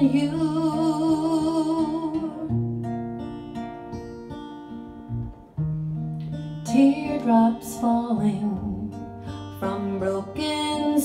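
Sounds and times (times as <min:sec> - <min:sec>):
woman singing with vibrato: 0:00.0 - 0:02.6, 0:06.6 - 0:11.0
acoustic guitar picking chords: 0:00.0 - 0:11.0.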